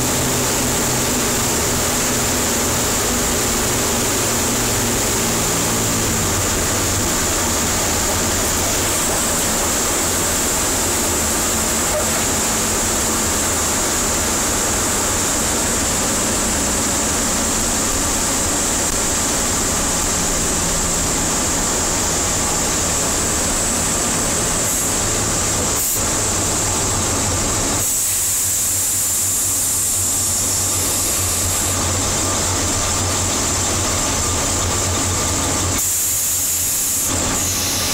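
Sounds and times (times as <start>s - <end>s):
aircraft engines droning: 0.0s - 27.8s.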